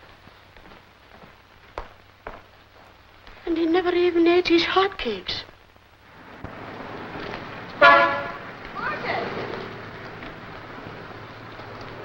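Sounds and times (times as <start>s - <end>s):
film soundtrack hiss: 0.0s - 12.0s
street traffic: 3.0s - 12.0s.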